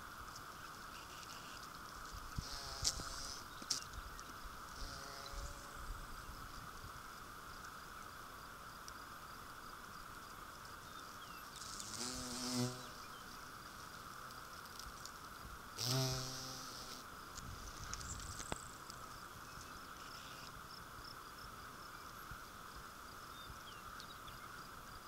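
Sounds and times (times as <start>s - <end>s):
bumblebee buzzing: 0.9s - 1.7s, 2.4s - 3.8s, 4.7s - 5.9s, 11.6s - 13.2s, 15.8s - 18.2s.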